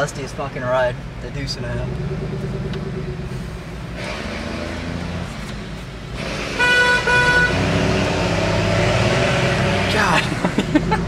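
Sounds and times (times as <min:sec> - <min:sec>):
car engine and road noise: 0:00.0 - 0:11.0
car horn toots: 0:06.4 - 0:08.0.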